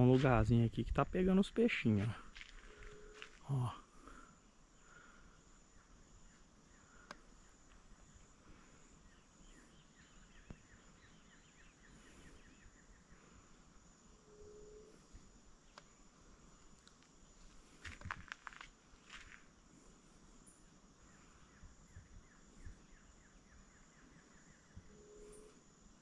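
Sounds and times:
faint chirps: 0:01.6 - 0:18.4, 0:19.2 - 0:26.0
high insect buzz: 0:01.9 - 0:26.0.

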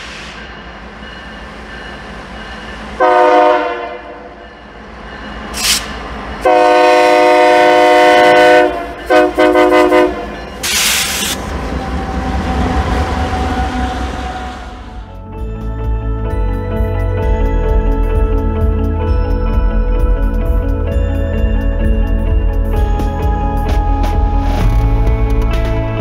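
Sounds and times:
locomotive air horn: 0:03.0 - 0:04.3, 0:06.4 - 0:11.4.

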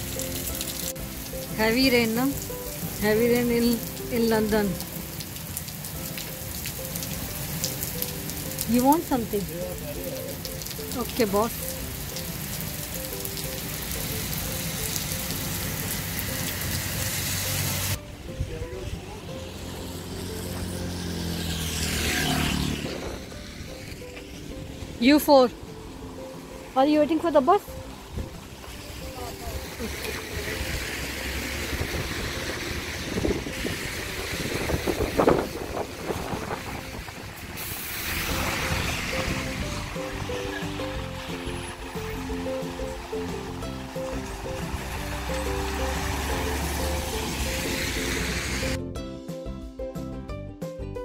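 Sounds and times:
raindrops clicking close by: 0:00.0 - 0:18.0, 0:24.1 - 0:47.8
heavy rain on a road: 0:00.0 - 0:48.8
wind rumbling on microphone: 0:29.6 - 0:40.4.

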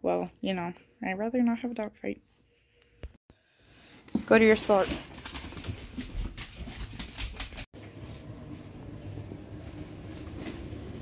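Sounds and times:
dog claws clicking on floor: 0:04.8 - 0:07.7.

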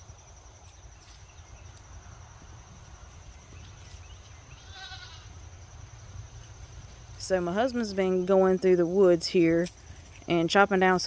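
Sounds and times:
insect trill: 0:00.0 - 0:11.0
goat bleating: 0:04.6 - 0:05.3.

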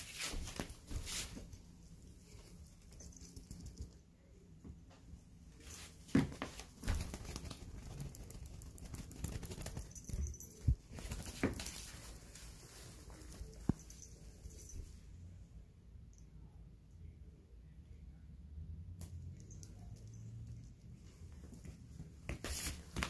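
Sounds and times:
cat paws rustling and scuffing: 0:00.0 - 0:03.7, 0:05.6 - 0:15.0, 0:21.0 - 0:23.0.

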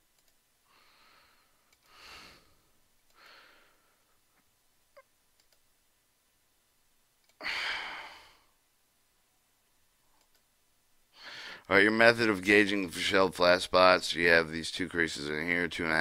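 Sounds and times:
faint mouse clicks: 0:00.1 - 0:00.4, 0:01.7 - 0:01.9, 0:05.4 - 0:05.7, 0:07.2 - 0:07.4, 0:10.1 - 0:10.5
person breathing: 0:00.6 - 0:04.4, 0:07.4 - 0:08.6, 0:11.1 - 0:11.7
loud sigh: 0:07.4 - 0:08.5.

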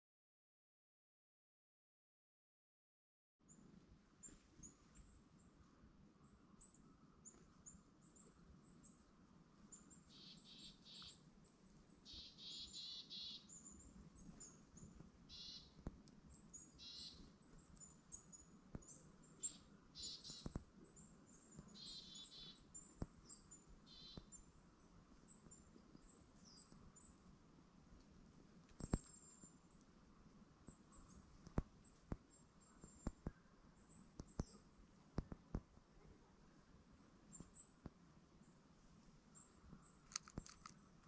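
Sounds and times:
sharp clicks: 0:40.0 - 0:40.8.

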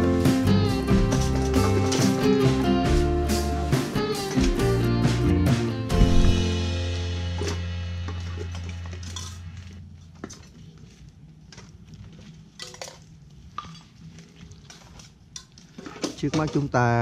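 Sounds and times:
background music: 0:00.0 - 0:09.6.

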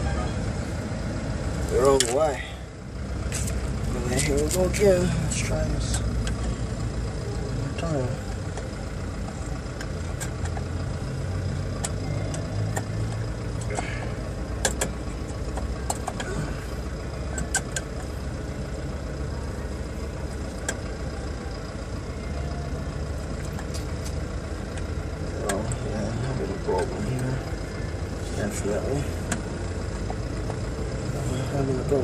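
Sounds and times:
low engine hum: 0:00.0 - 0:32.0.

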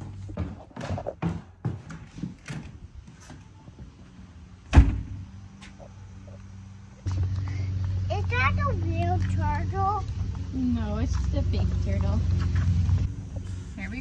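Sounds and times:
door shutting with a thud: 0:04.7 - 0:05.2.

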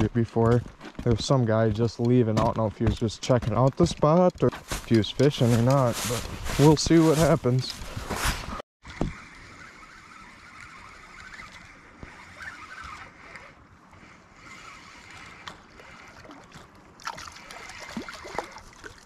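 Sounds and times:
fishing reel whirring: 0:08.9 - 0:19.0.

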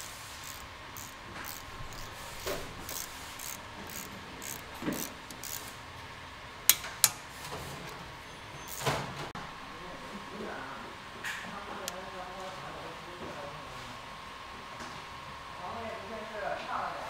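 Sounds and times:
ratchet wrench clicking: 0:00.0 - 0:05.7.

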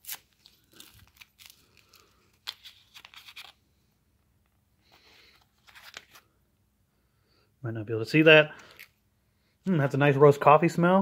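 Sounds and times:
foil pouch crinkling and tearing: 0:00.0 - 0:03.6.

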